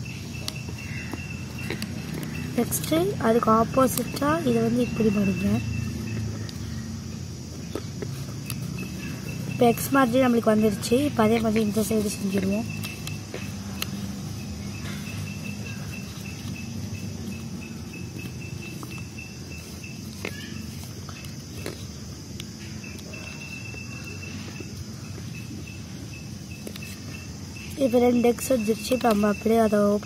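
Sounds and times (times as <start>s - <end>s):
insects chirring: 0.0s - 30.0s
paper rustling and creasing: 7.6s - 22.0s.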